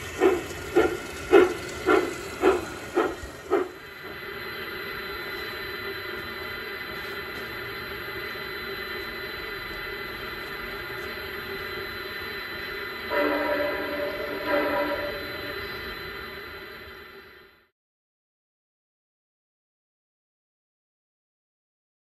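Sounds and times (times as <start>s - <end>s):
model locomotive hiss and hum: 0.0s - 17.7s
multi-tone whistle: 13.0s - 17.7s.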